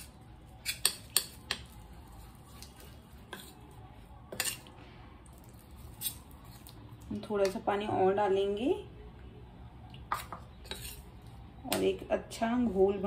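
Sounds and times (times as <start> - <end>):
spoon scraping steel bowl: 0.6 - 1.7, 2.6 - 3.6, 4.3 - 4.7, 10.1 - 11.1.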